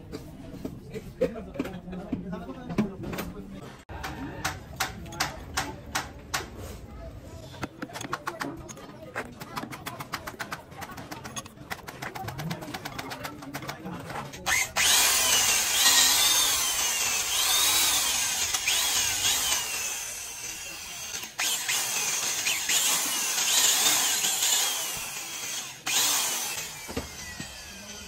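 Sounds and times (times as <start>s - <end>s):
power tool cutting metal: 14.4s - 28.0s.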